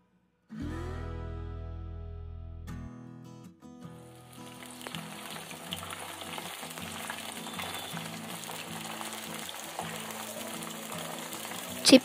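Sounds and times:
deep-frying sizzle and crackles: 4.2 - 12.0.

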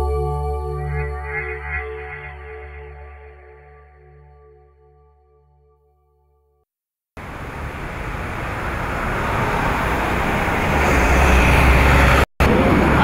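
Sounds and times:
bus engine rumble: 7.2 - 13.0
cars driving past: 7.2 - 13.0.

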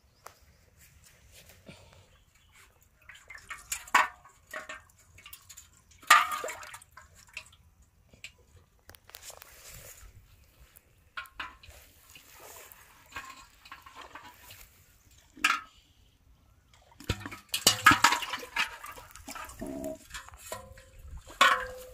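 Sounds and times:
water splashing in a metal pot: 2.3 - 8.6, 11.0 - 16.0, 16.6 - 21.9.

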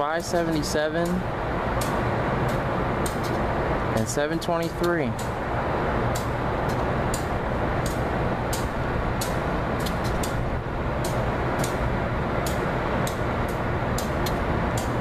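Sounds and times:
diesel locomotive engine rumble: 0.0 - 15.0
sharp light clicks: 0.5 - 1.2, 1.8 - 3.4, 6.1 - 10.4, 11.0 - 11.8, 12.4 - 15.0.

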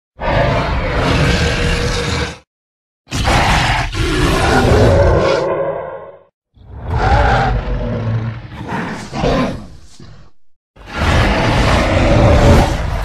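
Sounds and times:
deep rough dinosaur roar: 0.2 - 2.4, 3.1 - 13.0.

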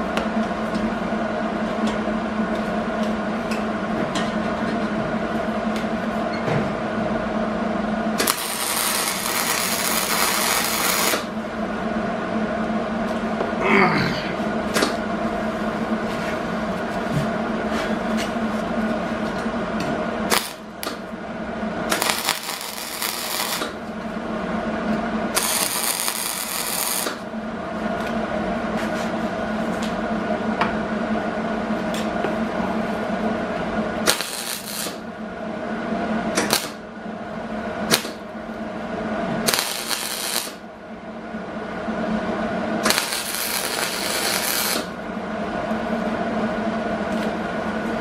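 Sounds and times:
electrical hum: 0.0 - 48.0
welding arc crackling: 8.2 - 11.4, 20.3 - 21.0, 21.9 - 23.9, 25.3 - 27.3, 34.0 - 35.1, 36.4 - 36.8, 37.9 - 38.2, 39.4 - 40.6, 42.8 - 45.0.

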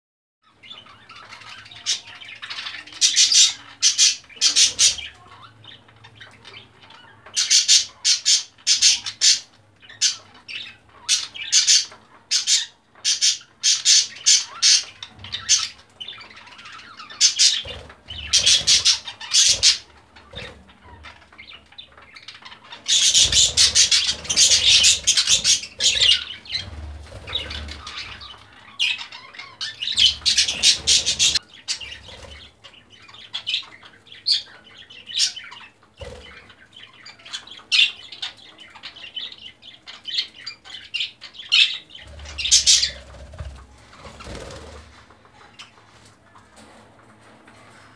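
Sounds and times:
budgerigars squawking and chirping: 0.4 - 47.9
wings flapping: 17.4 - 20.7, 23.0 - 28.4, 30.0 - 32.4, 42.0 - 45.1.

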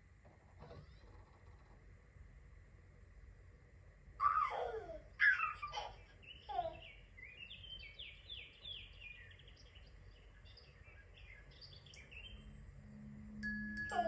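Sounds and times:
recorded birdsong from speaker: 4.2 - 12.5, 13.8 - 14.0.

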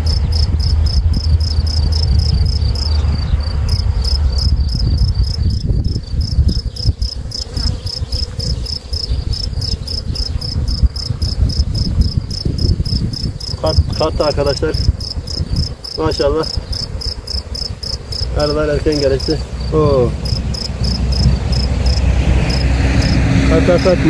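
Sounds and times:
cricket chirping: 0.0 - 24.0
low uneven rumble: 8.4 - 24.0.

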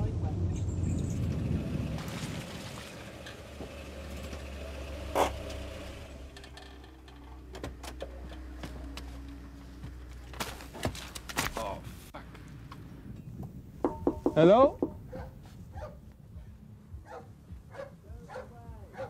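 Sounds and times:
car engine idling: 0.0 - 10.2.

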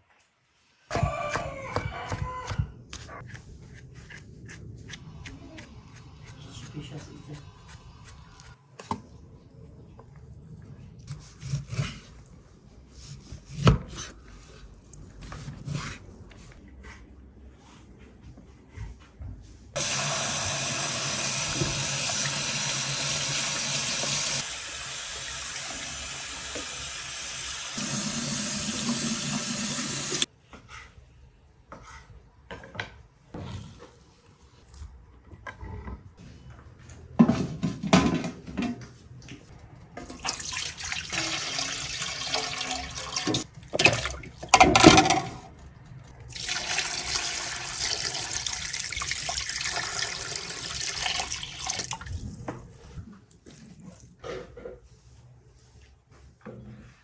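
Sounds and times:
water pouring into metal pot: 40.2 - 44.4, 46.3 - 52.1.

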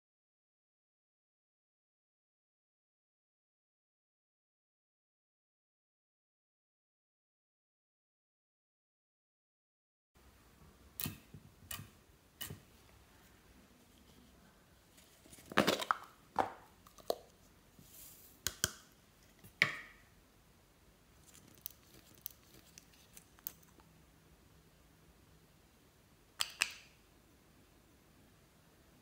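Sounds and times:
small containers rattling: 15.1 - 17.3.

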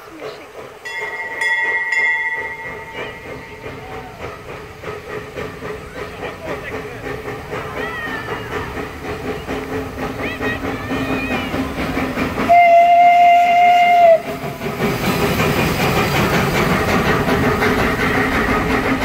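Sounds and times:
train rumbling on track: 0.0 - 19.0
steam whistle blast: 12.5 - 14.4.

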